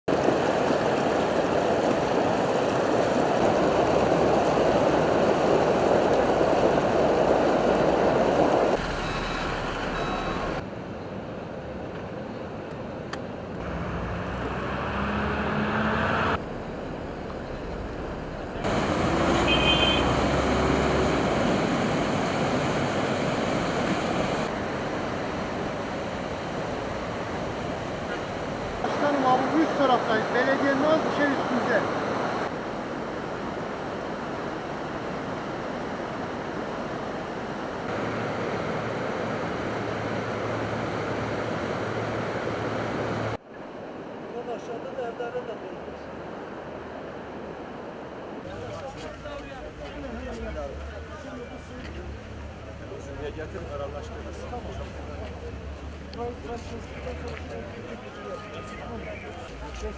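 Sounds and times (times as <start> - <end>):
floodwater rushing: 0.1 - 10.6, 13.6 - 44.9
diesel engines running: 3.7 - 10.6, 13.3 - 30.4.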